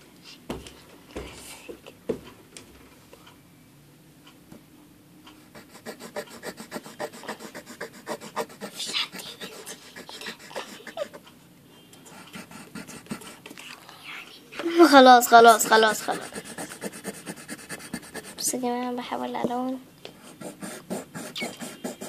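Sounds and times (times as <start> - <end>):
pencil scratching on paper: 5.5 - 11.2, 12.1 - 13.4, 15.2 - 18.6, 20.2 - 22.0.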